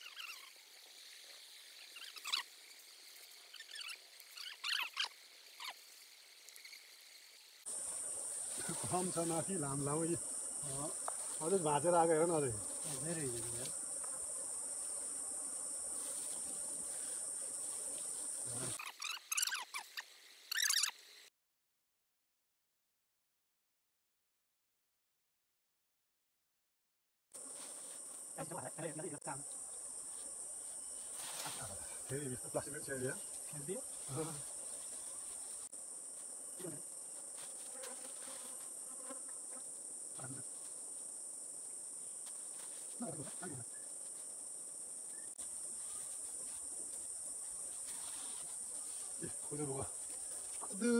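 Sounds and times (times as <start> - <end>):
insects chorus: 0.0 - 21.3, 27.4 - 50.9
bees buzzing: 7.7 - 18.8.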